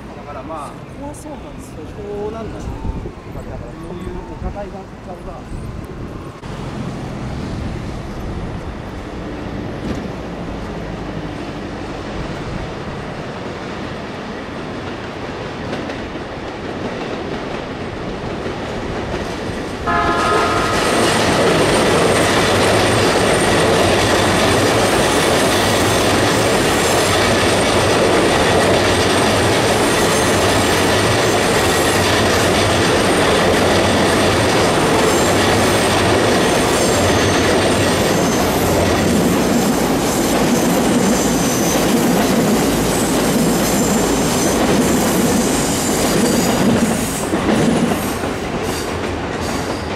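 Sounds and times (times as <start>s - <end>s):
train rumbling past: 0.0s - 49.9s
train wheel noise: 0.0s - 49.9s
train horn blast: 19.8s - 21.1s.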